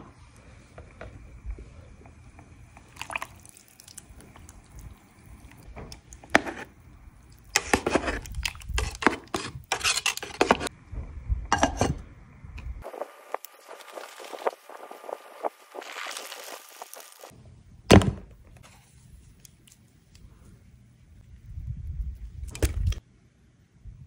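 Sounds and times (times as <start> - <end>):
sauce dripping into pot: 2.7 - 6.3, 7.2 - 9.0.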